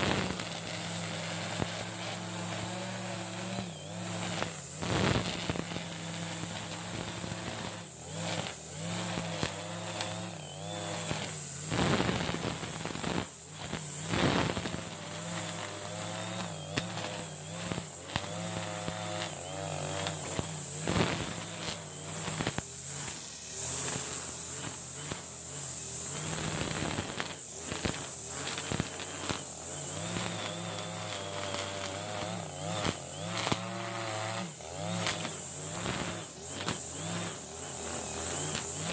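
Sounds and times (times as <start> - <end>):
brush cutter engine running: 0.0 - 38.9
trimmer head cutting grass: 0.0 - 38.9.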